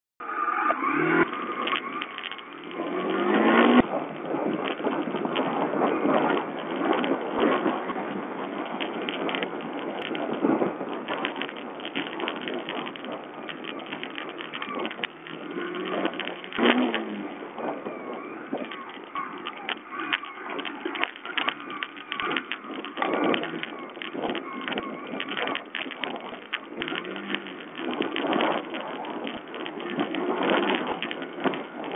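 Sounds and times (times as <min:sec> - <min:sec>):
motorcycle engine revving: 0:00.2 - 0:06.1, 0:13.4 - 0:31.0
bike knocking over rough ground: 0:00.9 - 0:31.9.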